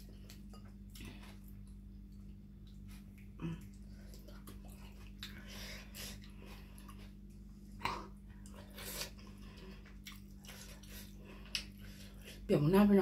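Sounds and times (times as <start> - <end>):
wet chewing and mouth smacks: 0.0 - 12.4
steady low hum: 0.0 - 13.0.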